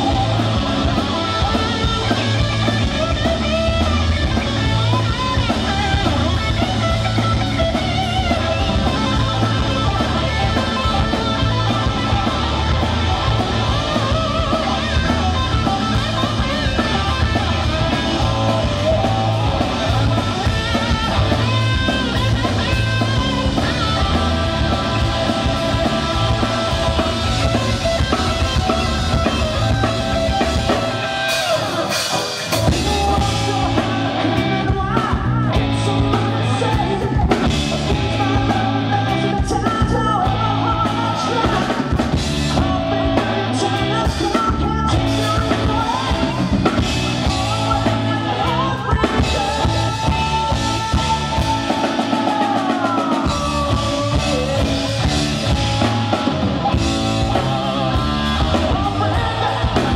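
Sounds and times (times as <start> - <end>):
bass guitar: 0.0 - 59.9
distorted electric guitars: 0.0 - 59.9
drum kit: 0.0 - 59.9
lead vocals singing: 0.0 - 59.9.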